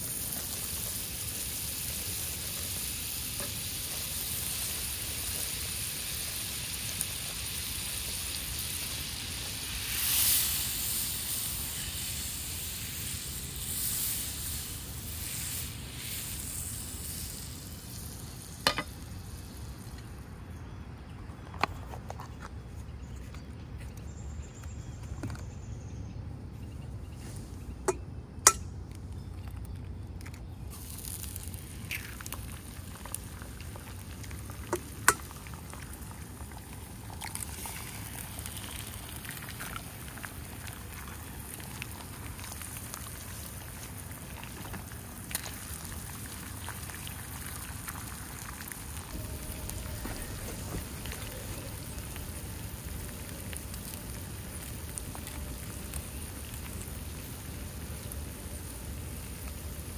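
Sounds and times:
food frying in a pan: 0.0 - 20.5, 30.6 - 59.9
low rumble: 48.8 - 54.2.

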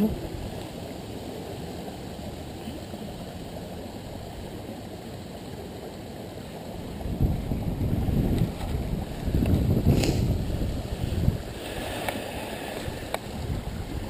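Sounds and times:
creek water: 0.0 - 14.0
wind on microphone: 6.8 - 14.0.

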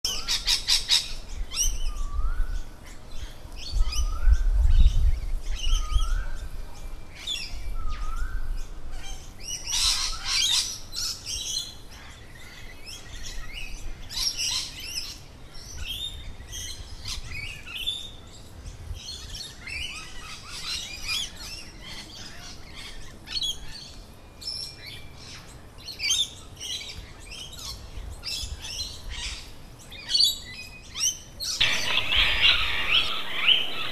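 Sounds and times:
birds chirping: 31.5 - 33.9
rising two-step bird call: 31.6 - 33.9.

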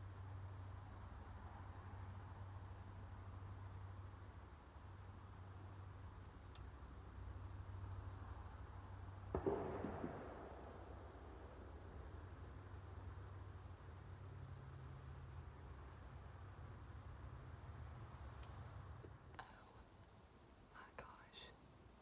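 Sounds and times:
crickets chirping: 0.0 - 22.0.

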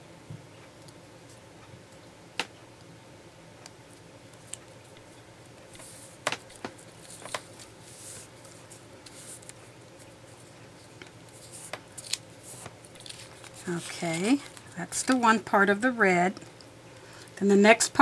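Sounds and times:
paper rustling and sliding: 5.7 - 9.6, 11.3 - 14.6.

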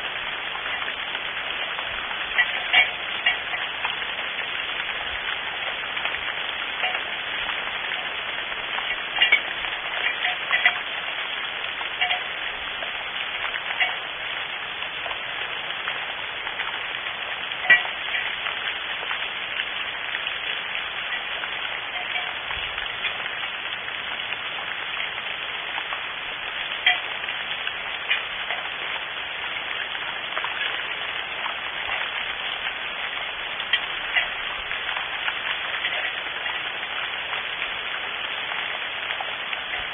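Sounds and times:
sharp water drips: 0.0 - 39.9
steady rain: 0.0 - 39.9.

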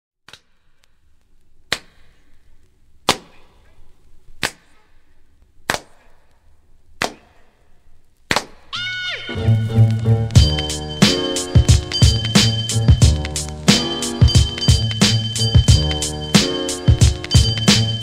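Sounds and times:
sharp cracks: 1.6 - 3.6, 4.3 - 4.9, 5.6 - 8.8.

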